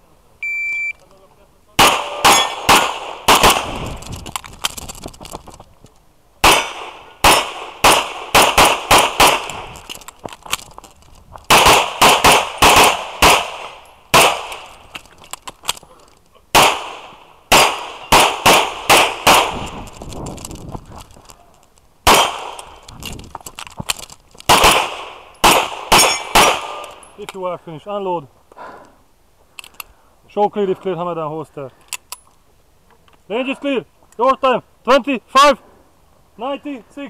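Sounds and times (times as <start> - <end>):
pistol shots: 1.8 - 4.0, 6.4 - 9.8, 11.5 - 14.7, 16.5 - 19.8, 22.0 - 22.8, 24.5 - 27.0.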